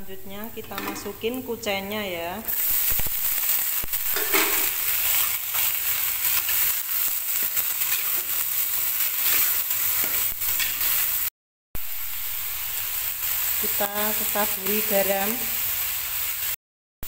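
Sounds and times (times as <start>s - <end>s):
chives sizzling in hot oil: 0.1s - 16.6s
spatula scraping a wok: 4.1s - 11.3s.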